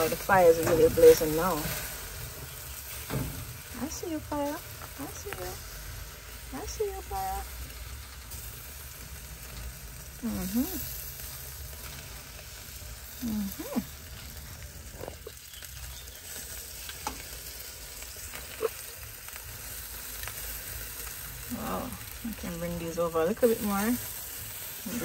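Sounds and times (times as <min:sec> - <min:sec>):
sausages sizzling on grill: 0:00.0 - 0:25.0.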